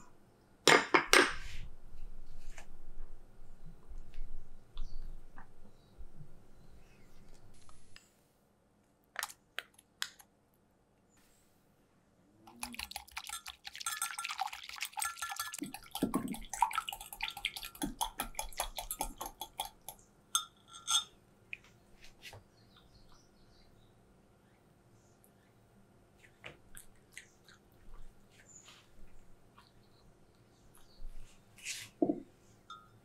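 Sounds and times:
spoon clinking in glass cup: 0:12.7 - 0:16.2, 0:17.3 - 0:21.2, 0:32.7 - 0:33.0.

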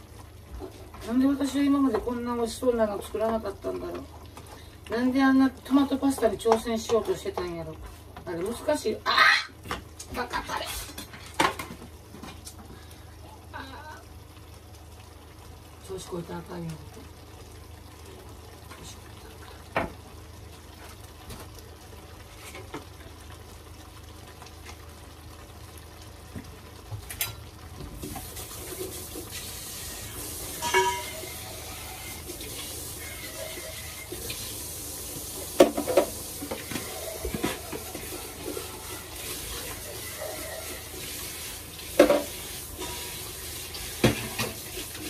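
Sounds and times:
water running into sink: 0:27.8 - 0:45.0
dishes clinking: 0:30.6 - 0:31.4.

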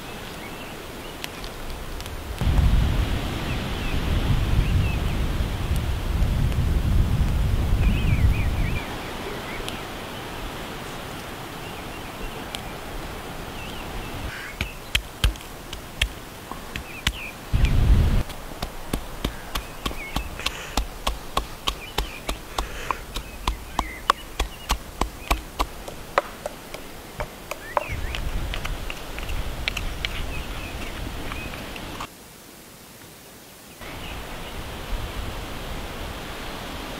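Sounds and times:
pestle pounding in wooden mortar: 0:14.5 - 0:17.2, 0:18.2 - 0:28.0.

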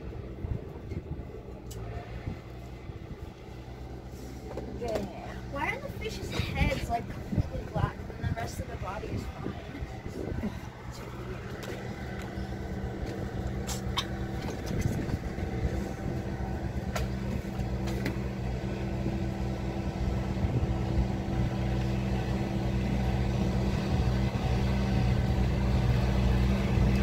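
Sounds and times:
engine humming: 0:00.0 - 0:27.0.

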